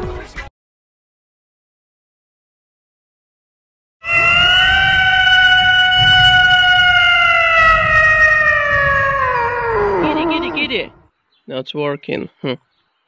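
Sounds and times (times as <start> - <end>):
cat meowing: 4.0 - 11.0.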